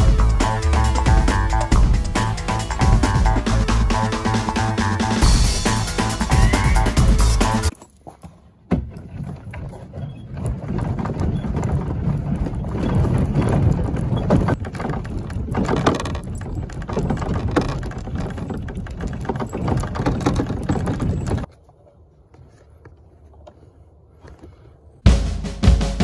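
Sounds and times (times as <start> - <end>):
kayak bump: 0.0 - 24.6
kayak hull scraping over gravel: 9.2 - 21.6.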